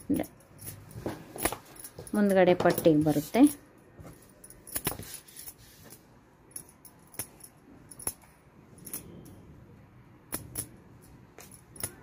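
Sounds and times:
cloth rustling: 0:00.6 - 0:06.2.

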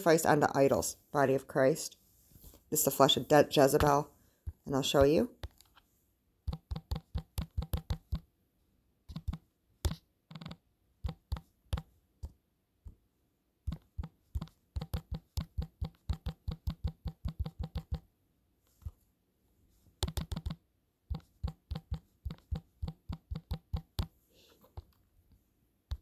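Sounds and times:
taps on phone touchscreen keyboard: 0:06.4 - 0:08.3, 0:09.1 - 0:12.4, 0:13.7 - 0:18.1, 0:20.0 - 0:24.2.

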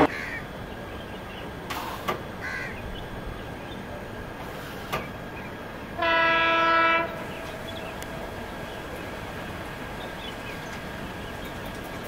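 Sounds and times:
train running noise: 0:00.0 - 0:12.0
train horn blast: 0:06.0 - 0:07.8.

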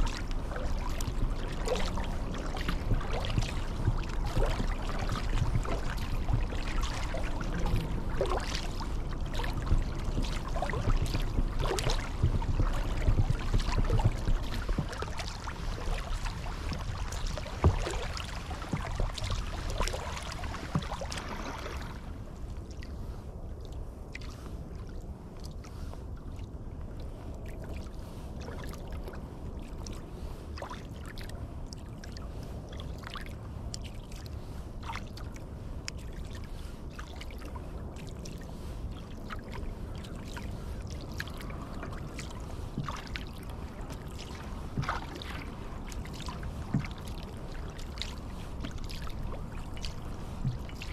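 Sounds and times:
water drips: 0:00.0 - 0:21.8, 0:40.3 - 0:50.9
low steady rumble: 0:00.0 - 0:50.9
paddle splashing water: 0:00.0 - 0:50.9.

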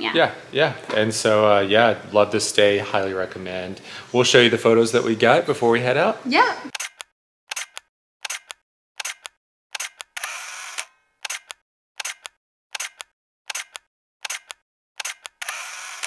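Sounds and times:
camera shutter double click: 0:06.8 - 0:16.0
film advance whir: 0:06.8 - 0:16.0.

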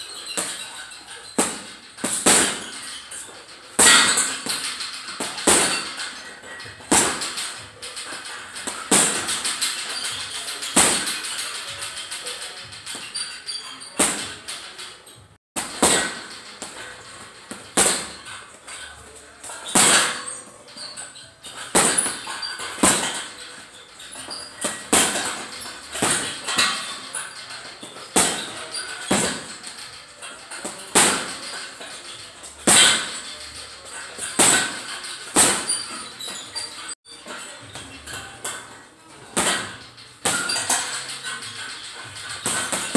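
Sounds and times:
gloves punching heavy bag: 0:01.4 - 0:02.8, 0:06.8 - 0:07.5, 0:08.6 - 0:11.2, 0:15.6 - 0:16.8, 0:17.5 - 0:18.3, 0:21.4 - 0:23.3, 0:24.2 - 0:27.0, 0:27.8 - 0:29.6, 0:30.6 - 0:31.4, 0:34.2 - 0:35.9.

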